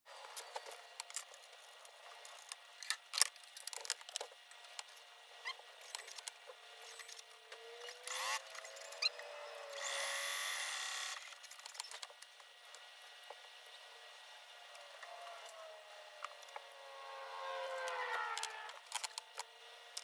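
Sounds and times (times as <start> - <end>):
faint rising tone: 14.6 - 18.9.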